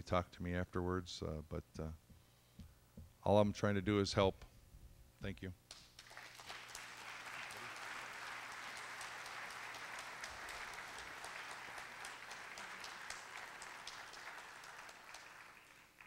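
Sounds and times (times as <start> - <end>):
audience applauding: 5.9 - 16.0.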